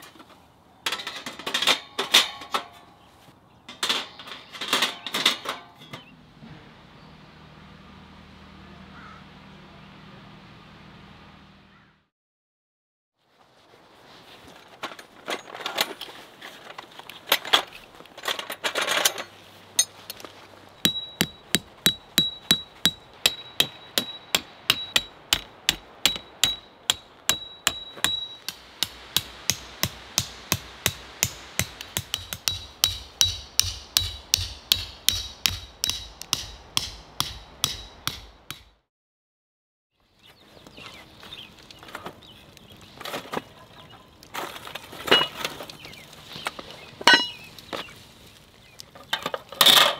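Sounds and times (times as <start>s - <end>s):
hammer striking tent peg: 20.8s - 38.8s
charcoal clinking in grill: 44.4s - 47.9s.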